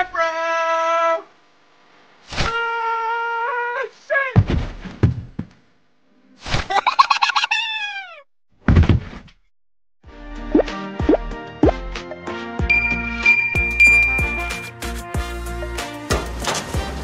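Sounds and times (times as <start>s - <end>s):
thuds: 4.4s - 5.6s, 8.6s - 9.4s
music: 10.0s - 17.0s
held electronic tone: 12.7s - 14.7s.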